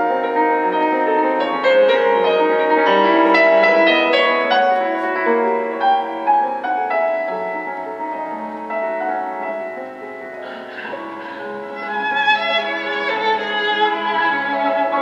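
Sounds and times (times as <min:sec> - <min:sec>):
classical piano over small loudspeakers: 0:00.0 - 0:15.0.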